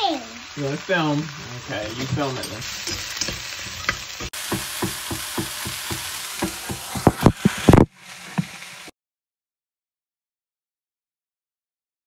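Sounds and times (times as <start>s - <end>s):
vegetables sizzling in butter: 0.0s - 8.9s
spatula stirring in pan: 1.3s - 8.9s.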